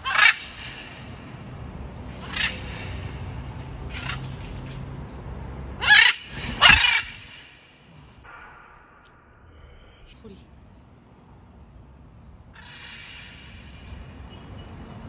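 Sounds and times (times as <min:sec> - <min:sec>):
macaw squawking: 0:00.0 - 0:01.3, 0:02.1 - 0:03.2, 0:03.9 - 0:04.5, 0:05.8 - 0:07.6, 0:12.6 - 0:13.9.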